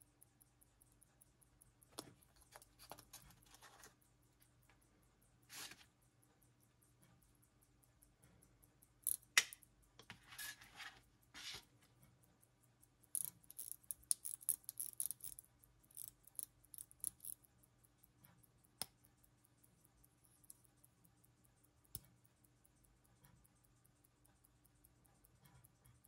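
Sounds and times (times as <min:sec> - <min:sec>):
watch ticking: 0:00.0 - 0:26.0
watch winding ratchet clicking: 0:06.6 - 0:09.9, 0:12.2 - 0:26.0.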